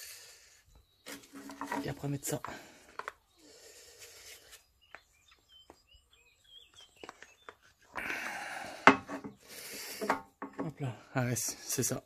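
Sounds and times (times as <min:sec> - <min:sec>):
faint birds chirping: 0:00.0 - 0:12.0
rubbing and scraping of parts: 0:01.1 - 0:03.1.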